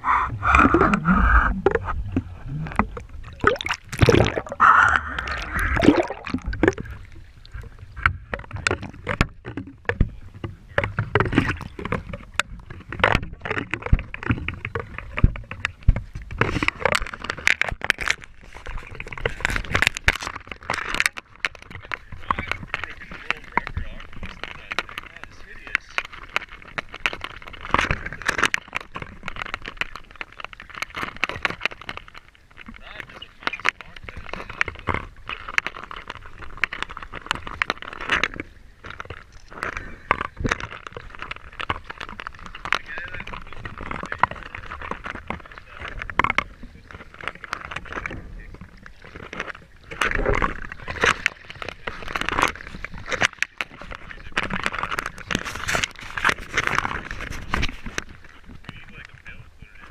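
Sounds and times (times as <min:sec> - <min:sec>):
water splashing on camera housing: 0:00.0 - 0:59.9
scrapes and knocks on camera housing: 0:54.4 - 0:58.2.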